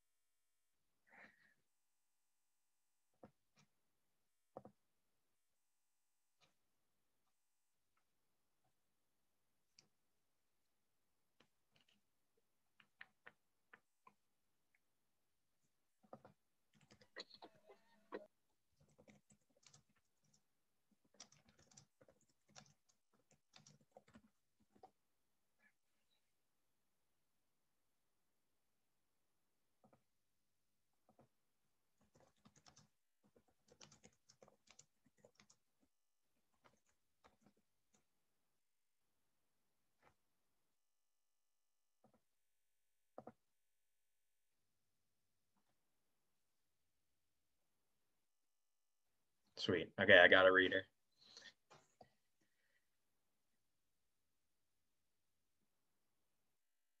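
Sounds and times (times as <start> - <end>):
keyboard clicks: 18.8 - 20.4, 21.0 - 24.9, 32.0 - 35.6.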